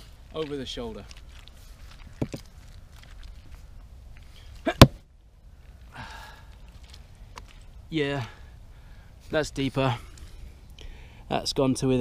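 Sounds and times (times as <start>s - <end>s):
axe chopping into log: 4.7s - 5.0s
breathy exhale: 5.9s - 6.6s, 10.3s - 11.3s.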